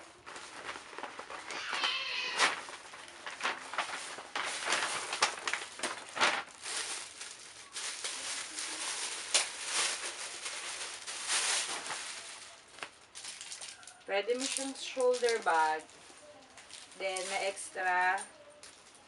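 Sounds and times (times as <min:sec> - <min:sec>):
paper bag rustling: 0:00.0 - 0:19.0
plastic wrapping crinkling: 0:00.0 - 0:19.0.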